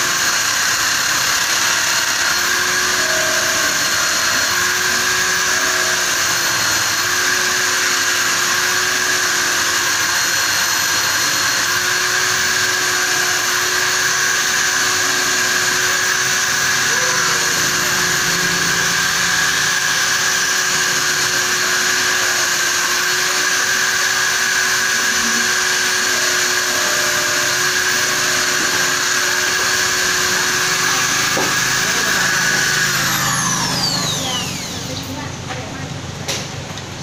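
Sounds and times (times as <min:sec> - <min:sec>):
cutter turning steel: 0:00.0 - 0:35.7
electric drill motor whining: 0:00.0 - 0:35.7.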